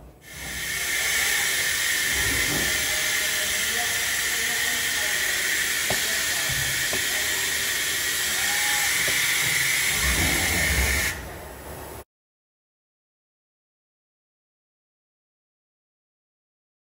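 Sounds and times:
cutting machine shrill hiss: 0:00.2 - 0:11.2.

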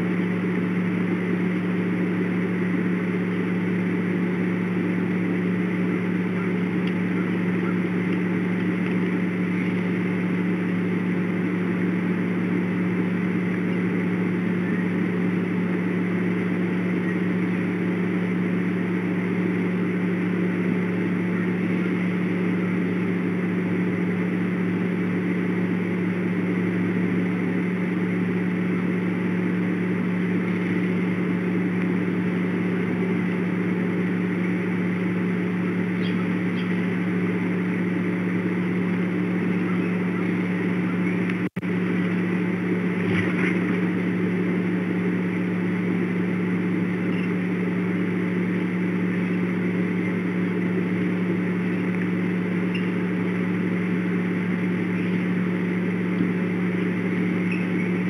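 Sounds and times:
low mechanical hum: 0:00.0 - 0:58.0.

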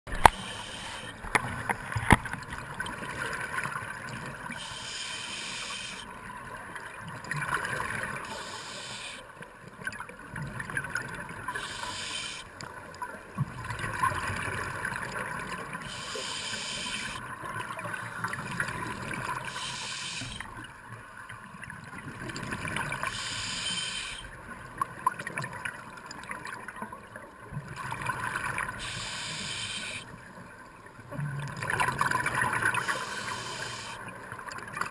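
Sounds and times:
regulator inhale hiss: 0:00.2 - 0:01.2, 0:04.6 - 0:06.1, 0:08.2 - 0:09.3, 0:11.5 - 0:12.5, 0:15.8 - 0:17.2, 0:19.5 - 0:20.5, 0:23.1 - 0:24.3, 0:28.7 - 0:30.1, 0:32.8 - 0:34.1.

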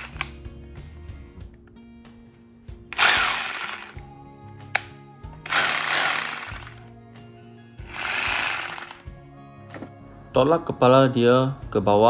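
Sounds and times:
background music: 0:00.0 - 0:12.0
rotary hammer running: 0:03.0 - 0:04.0, 0:05.4 - 0:06.8, 0:07.8 - 0:09.0.

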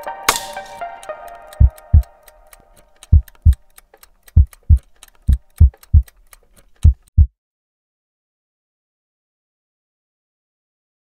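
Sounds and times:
musical chord: 0:00.0 - 0:02.8
clock ticking: 0:00.0 - 0:07.3
heartbeat thumps: 0:01.6 - 0:02.1, 0:03.1 - 0:03.6, 0:04.3 - 0:06.1, 0:06.8 - 0:07.3.

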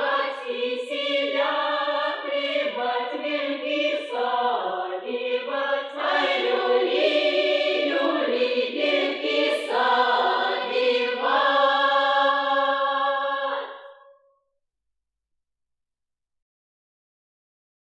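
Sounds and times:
women singing in harmony: 0:00.0 - 0:14.0.

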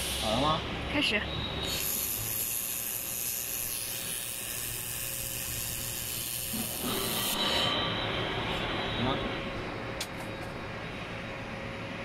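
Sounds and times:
laser welder hissing: 0:01.6 - 0:07.6.

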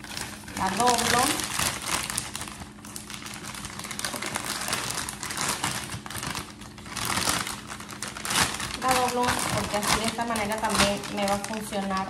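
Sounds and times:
plastic piping bag crinkling: 0:00.0 - 0:12.0.

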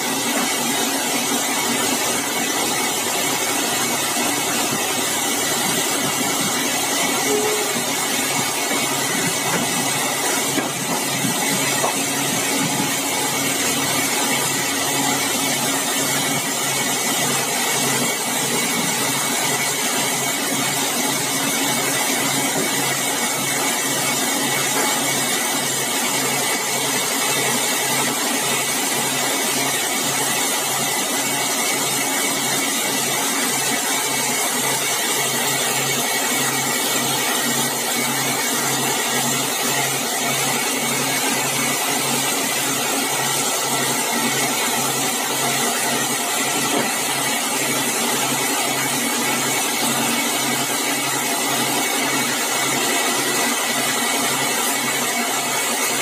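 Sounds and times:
band saw blade whining: 0:00.0 - 0:27.0.

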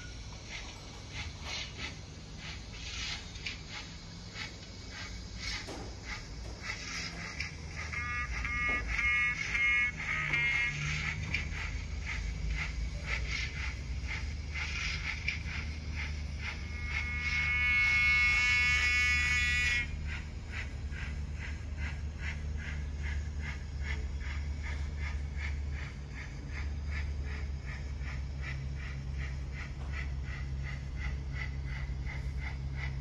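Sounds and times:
low hum: 0:00.0 - 0:33.0
model steam exhaust chuffs: 0:00.0 - 0:33.0.

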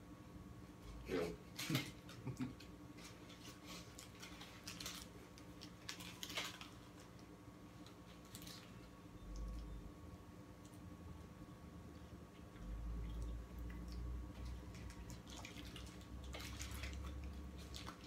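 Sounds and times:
faint steady hum: 0:00.0 - 0:18.0
paper wrapper crinkling: 0:03.0 - 0:08.9.

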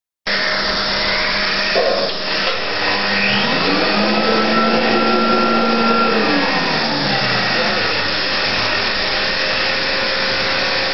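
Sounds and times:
popcorn machine motor whooshing: 0:02.2 - 0:10.9
high motor tone: 0:02.3 - 0:10.2
low hum: 0:03.0 - 0:09.1.

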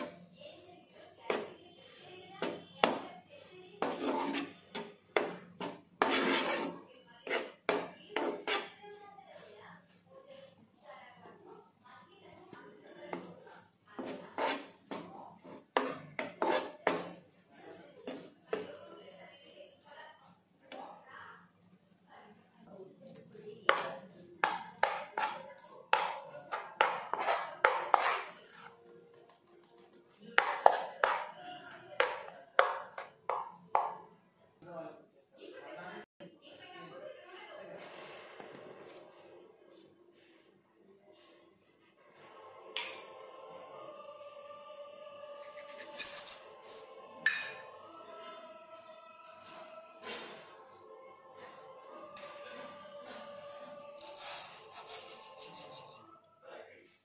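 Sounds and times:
metal spatula scraping a pan: 0:00.0 - 0:10.8, 0:12.4 - 0:20.4, 0:23.2 - 0:28.8, 0:30.1 - 0:33.2, 0:45.4 - 0:48.4, 0:49.3 - 0:50.8, 0:51.4 - 0:56.1.

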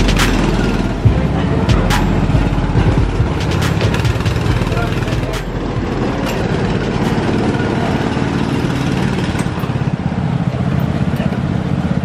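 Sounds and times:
go-kart engines idling: 0:00.0 - 0:12.0.

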